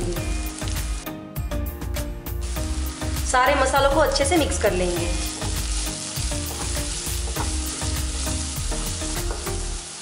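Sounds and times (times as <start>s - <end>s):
masala sizzling in oil: 0.0s - 10.0s.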